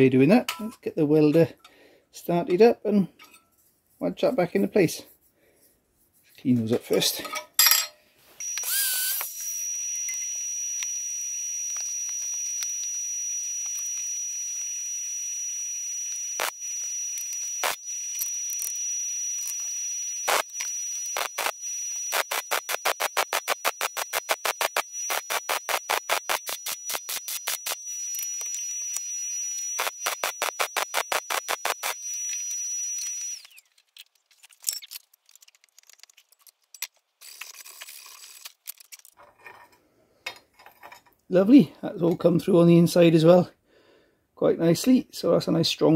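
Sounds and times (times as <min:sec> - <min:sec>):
arc welder hissing and whining: 0:08.4 - 0:33.8
welding crackles: 0:08.4 - 0:39.2.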